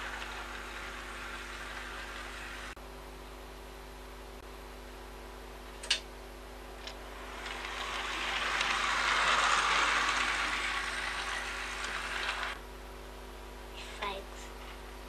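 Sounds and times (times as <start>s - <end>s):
model train whirring on track: 0.0s - 2.8s, 6.8s - 12.6s.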